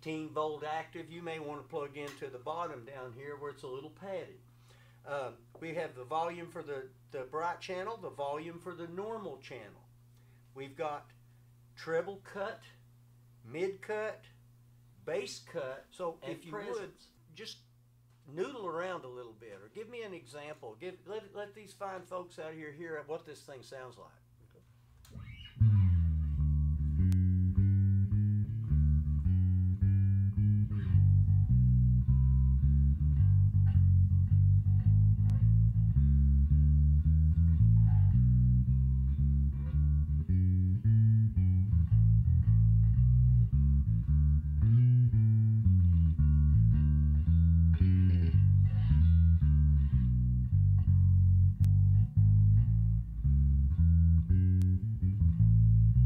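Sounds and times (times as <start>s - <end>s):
electric bass plucking: 25.1s - 56.0s.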